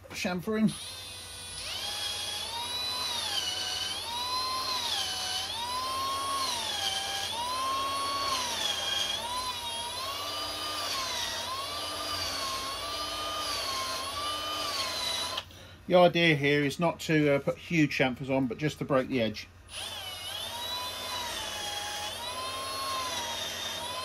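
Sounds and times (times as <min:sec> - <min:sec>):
electric drill motor whine: 0:00.7 - 0:15.5, 0:19.7 - 0:24.0.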